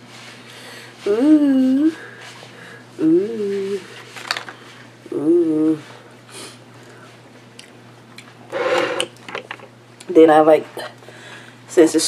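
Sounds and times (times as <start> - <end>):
woman humming: 1.0 - 2.2, 3.0 - 3.9, 5.0 - 6.0.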